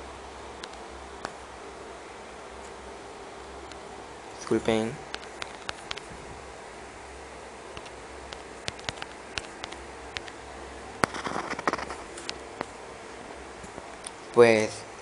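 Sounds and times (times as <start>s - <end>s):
low steady hum: 0.0s - 15.0s
fingertip taps on touchscreen: 7.8s - 10.4s.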